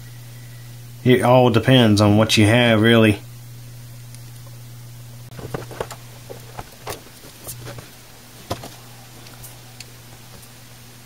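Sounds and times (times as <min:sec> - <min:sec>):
steady low hum: 0:00.0 - 0:11.0
circuit board handling knocks and rustles: 0:05.3 - 0:10.5.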